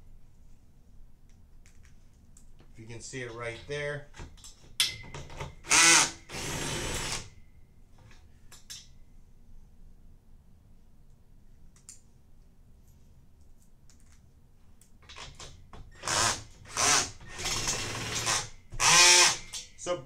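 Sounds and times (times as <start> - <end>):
power drill driving a bolt: 5.6 - 7.3, 15.1 - 19.7.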